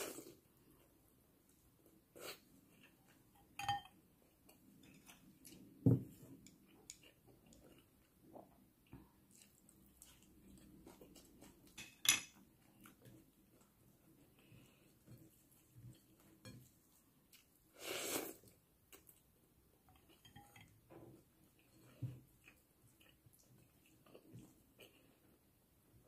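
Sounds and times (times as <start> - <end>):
soft chewing: 0.0 - 26.0
chopsticks clinking on ceramic bowls: 3.4 - 4.0, 11.7 - 12.4, 20.0 - 20.8.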